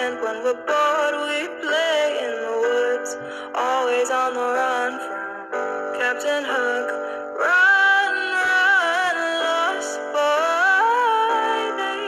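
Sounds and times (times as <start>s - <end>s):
sustained backing music: 0.0s - 12.0s
woman singing wordless melody: 0.0s - 12.0s.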